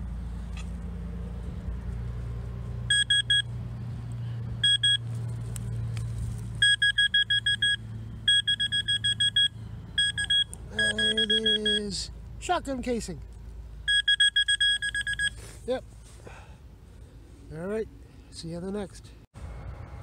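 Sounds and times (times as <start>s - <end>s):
pinpointer beeping: 2.9s - 3.5s, 4.6s - 5.0s, 6.6s - 12.0s, 13.9s - 15.4s.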